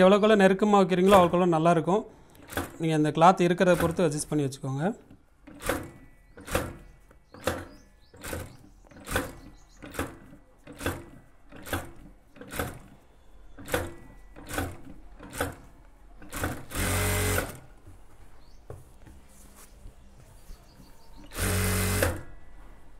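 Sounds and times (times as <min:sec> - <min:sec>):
sewing machine stitching: 0:03.6 - 0:04.3, 0:05.0 - 0:13.0, 0:13.6 - 0:17.6, 0:21.3 - 0:22.3.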